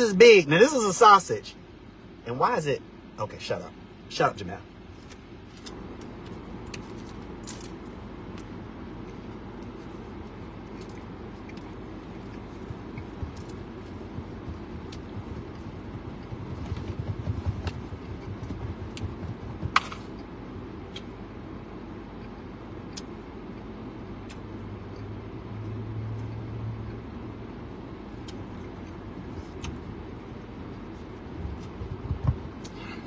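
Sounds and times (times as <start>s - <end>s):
car engine idling: 5.5s - 22.0s.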